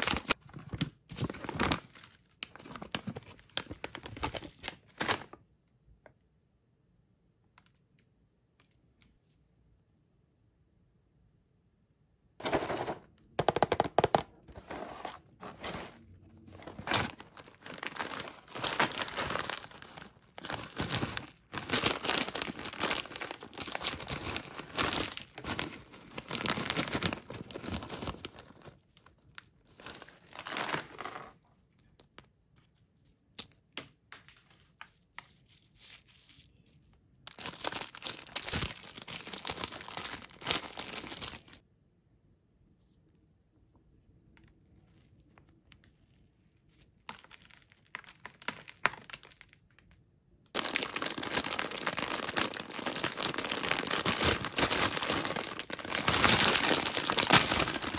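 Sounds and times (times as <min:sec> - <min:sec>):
snack wrappers crinkling: 0:12.4 - 0:31.0, 0:35.4 - 0:41.6, 0:46.7 - 0:57.9
wrapper being torn open: 0:15.4 - 0:31.0, 0:35.5 - 0:41.6, 0:50.6 - 0:57.9.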